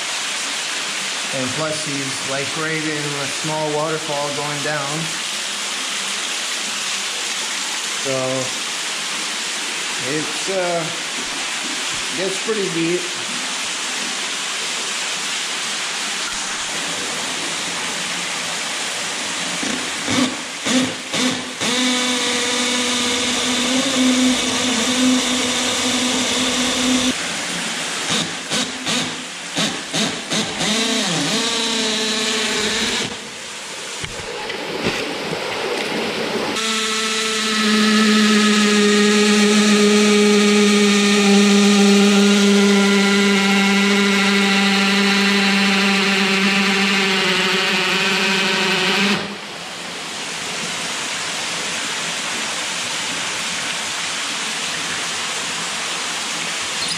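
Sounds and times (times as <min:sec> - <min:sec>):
water rushing from waterfall: 0:00.0 - 0:56.9
cordless drill boring into stone: 0:19.6 - 0:27.2, 0:28.1 - 0:33.2, 0:36.6 - 0:49.3.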